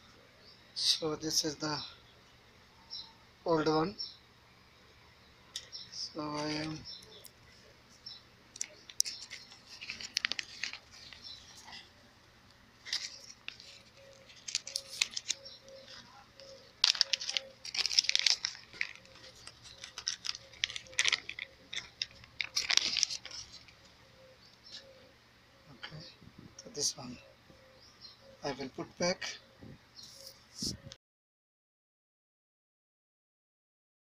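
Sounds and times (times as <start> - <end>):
rustling and scraping: 5.6 - 12.1, 12.8 - 24.0, 30.0 - 30.9.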